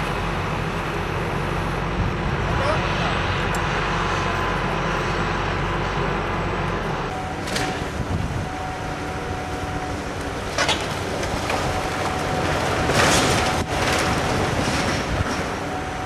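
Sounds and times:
excavator engine running: 0.0s - 16.0s
masonry crashing down: 10.5s - 15.7s.

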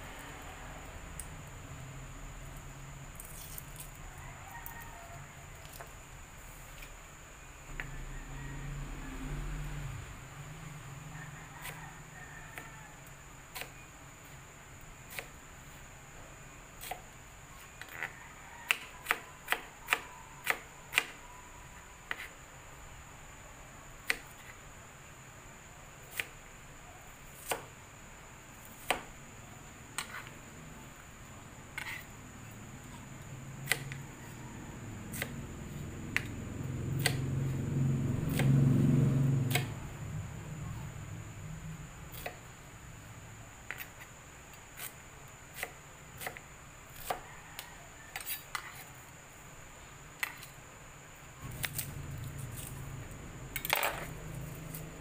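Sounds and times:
knife chopping on plastic board: 37.0s - 37.2s.

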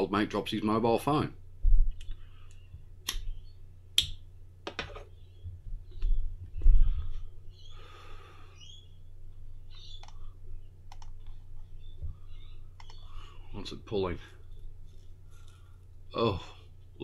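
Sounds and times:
low electrical hum: 0.0s - 17.0s
breathy exhale: 6.9s - 8.7s
computer mouse clicks: 9.9s - 10.2s, 10.9s - 11.4s, 12.8s - 13.0s.

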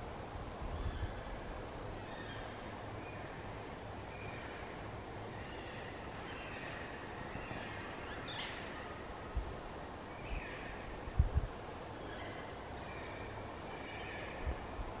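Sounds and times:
wind roaring through branches: 0.0s - 15.0s
wind thump on microphone: 11.2s - 11.5s.

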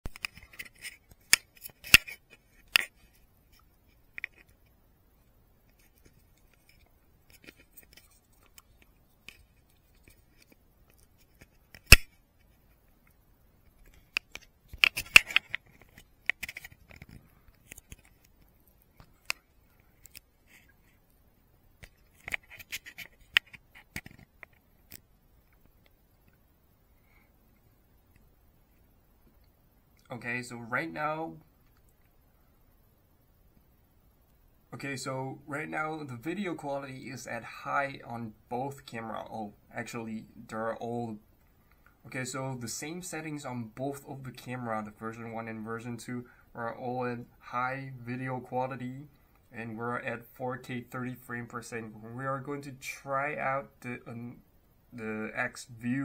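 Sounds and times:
camera handling noise: 0.1s - 3.1s, 5.7s - 12.2s, 13.8s - 18.4s, 21.8s - 25.0s.

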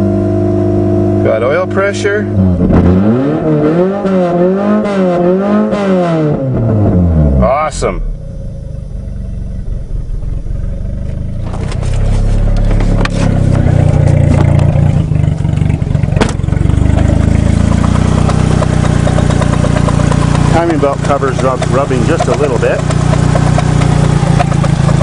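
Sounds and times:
car engine idling: 6.6s - 25.0s
sharp knocks: 16.1s - 25.0s.

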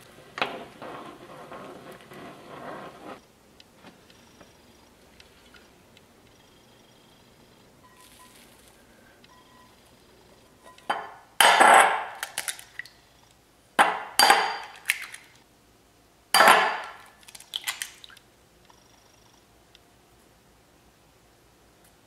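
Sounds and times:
eggs cracking: 16.8s - 18.2s.

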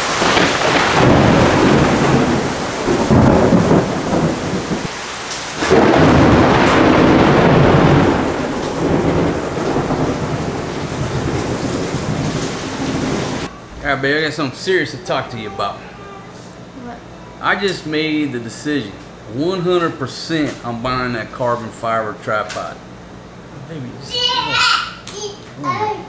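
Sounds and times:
rolling thunder: 0.0s - 14.4s
heavy rain: 0.0s - 16.2s.

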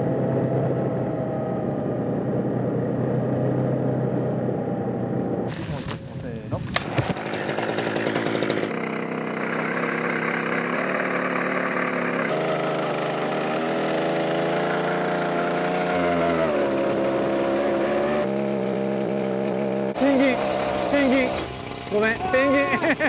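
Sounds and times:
ice auger engine running: 7.0s - 17.6s, 19.9s - 23.0s.

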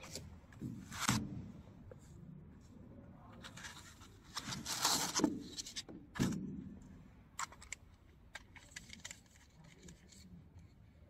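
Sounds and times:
plastic parts rustling and scraping: 3.4s - 6.4s, 7.4s - 10.8s
plastic parts clicking together: 7.4s - 10.2s.

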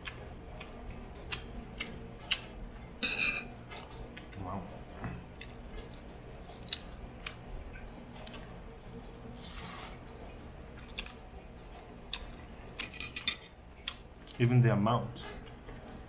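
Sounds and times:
fork scraping plate: 3.0s - 3.9s.

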